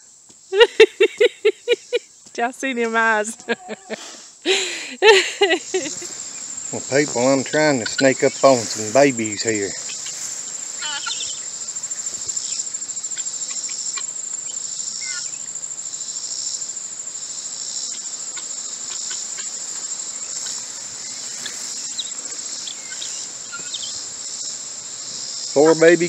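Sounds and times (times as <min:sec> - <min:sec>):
insects trilling: 0:00.0 - 0:26.0
faint high chirps: 0:05.6 - 0:15.5, 0:20.2 - 0:24.2.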